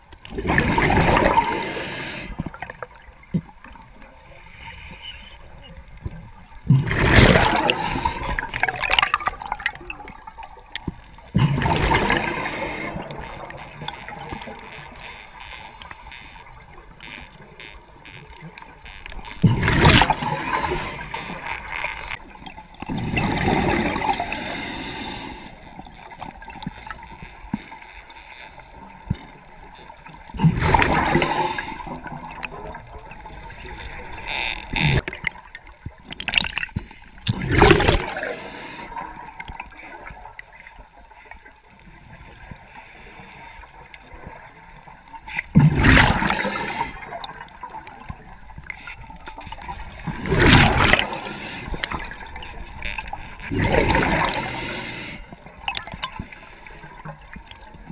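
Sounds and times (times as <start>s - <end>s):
gurgling exhaled bubbles: 0.3s - 2.8s, 6.6s - 10.5s, 11.3s - 14.5s, 19.4s - 25.2s, 30.3s - 34.2s, 36.2s - 39.6s, 45.5s - 48.0s, 50.0s - 56.2s
diver breathing through regulator: 1.1s - 2.4s, 7.2s - 8.6s, 11.8s - 13.5s, 19.7s - 22.2s, 23.0s - 25.7s, 30.6s - 32.1s, 37.9s - 39.1s, 42.7s - 43.7s, 46.0s - 47.1s, 50.6s - 52.3s, 53.6s - 55.4s.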